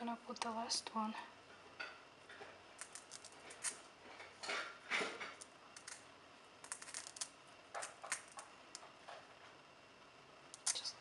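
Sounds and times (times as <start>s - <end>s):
wire clicking and scraping: 2.3s - 9.2s.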